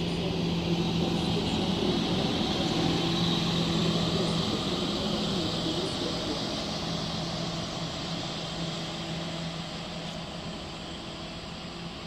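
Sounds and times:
diesel railcar engine droning: 0.0 - 12.0.

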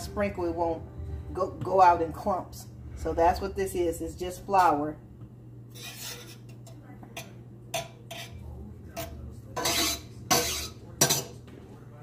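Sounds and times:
low steady hum: 0.0 - 12.0
utensil scraping a steel pan: 5.7 - 11.3.

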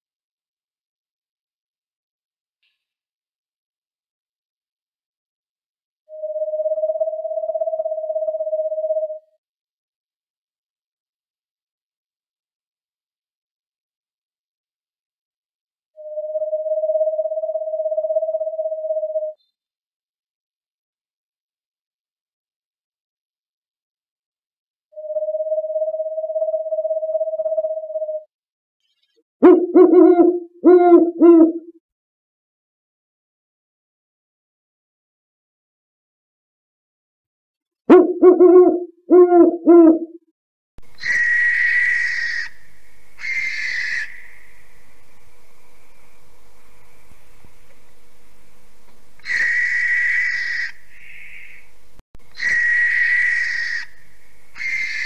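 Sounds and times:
owl hooting: 6.1 - 9.3, 16.0 - 19.4, 25.0 - 28.3, 29.4 - 31.7, 37.9 - 40.1, 40.8 - 48.2, 49.2 - 55.0
steady hiss: 42.5 - 49.2.

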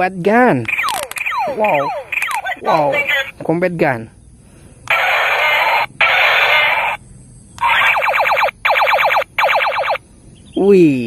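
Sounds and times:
falling laser tones: 0.7 - 3.1, 4.9 - 7.0, 7.6 - 10.0
toy laser gun sound effects: 0.7 - 3.3, 4.9 - 7.0, 7.6 - 10.0.

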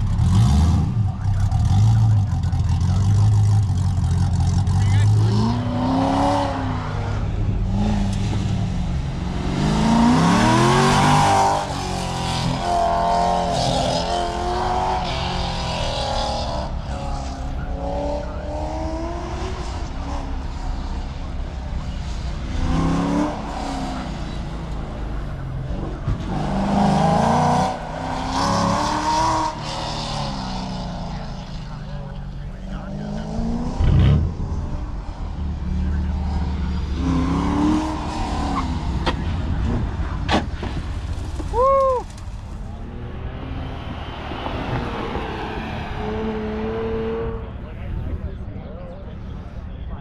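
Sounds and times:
car engine revving: 0.0 - 50.0
tires squealing: 35.9 - 47.8.

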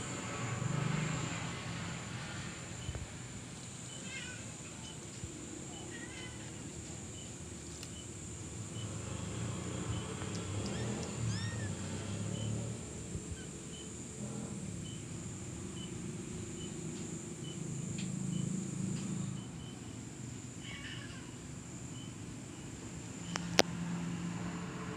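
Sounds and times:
low uneven rumble: 0.0 - 23.6
kittens mewing: 10.0 - 13.6, 20.6 - 21.5.

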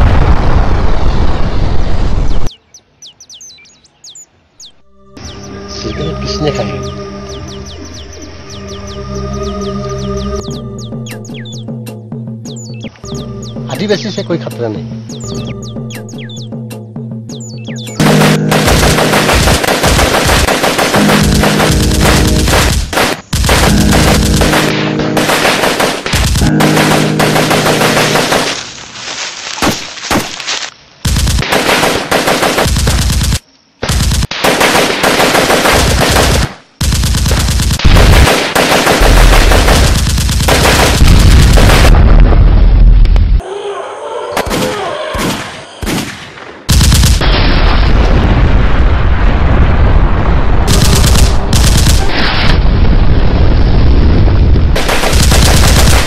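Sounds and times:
automatic gunfire: 18.0 - 28.6, 31.1 - 42.0, 50.7 - 52.1, 54.8 - 56.0
deep rumble: 39.0 - 43.4, 47.3 - 54.8.

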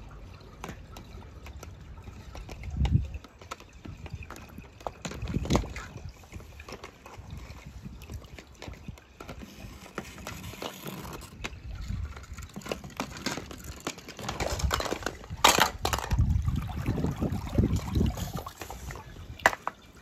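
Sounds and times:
water sloshing: 0.0 - 20.0
toy cars clicking and knocking: 12.2 - 16.2.

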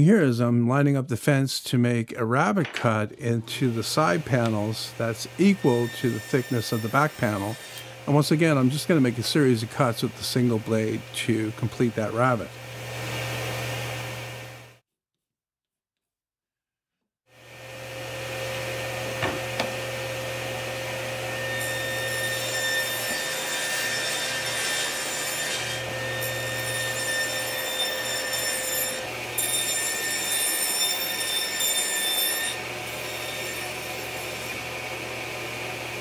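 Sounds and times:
saw blade cutting wood: 3.5 - 12.5, 21.2 - 34.8
table saw motor humming: 3.6 - 14.8, 17.4 - 36.0.

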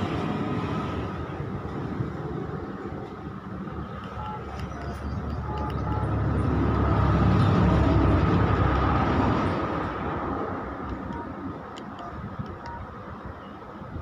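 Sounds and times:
passing vehicle rumble: 0.0 - 14.0
phone keypad beeps: 4.1 - 6.2, 10.9 - 13.6.

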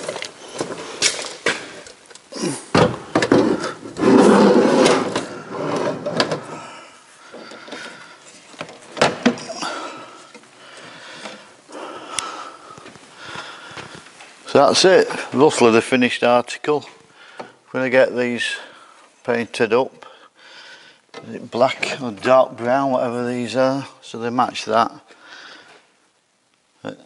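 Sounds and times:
oven sliding scrape: 4.0 - 6.2.

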